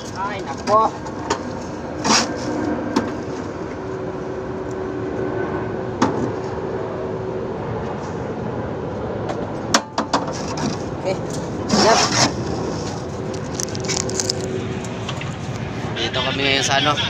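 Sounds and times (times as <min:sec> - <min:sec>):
strong wind rushing: 0:00.0 - 0:16.7.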